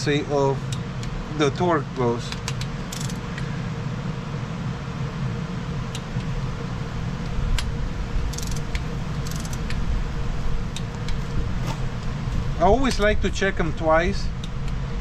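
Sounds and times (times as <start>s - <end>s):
steady low hum: 0.0s - 15.0s
torque wrench clicking: 2.3s - 3.4s, 8.3s - 9.8s.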